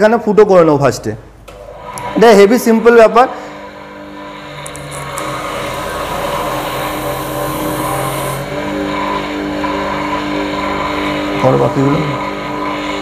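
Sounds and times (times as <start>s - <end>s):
motor humming: 1.4s - 13.0s
drill bit scraping rubber: 4.2s - 9.2s.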